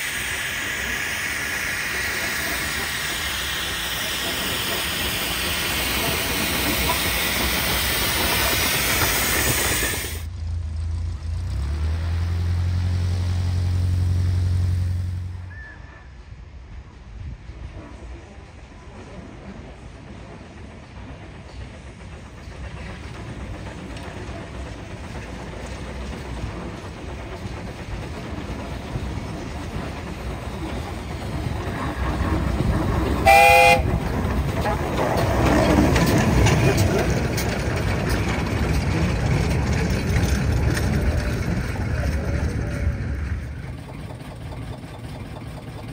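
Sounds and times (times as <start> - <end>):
steam locomotive hissing: 0.0 - 10.3, 12.7 - 45.9
train wheels rumbling on track: 0.0 - 45.9.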